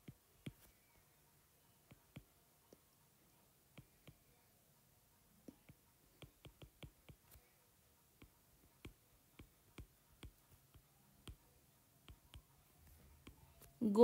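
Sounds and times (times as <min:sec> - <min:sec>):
stylus tapping on glass screen: 0:05.5 - 0:07.4, 0:08.2 - 0:11.4.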